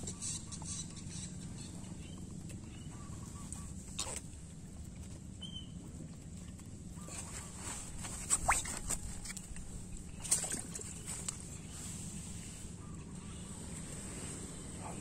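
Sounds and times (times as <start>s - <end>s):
fishing net rustling: 7.1s - 12.4s.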